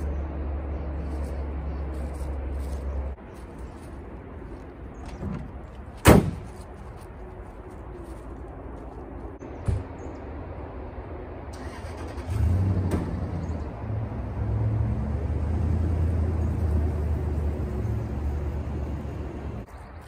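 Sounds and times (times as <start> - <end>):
truck engine starting and running: 11.3 - 19.7.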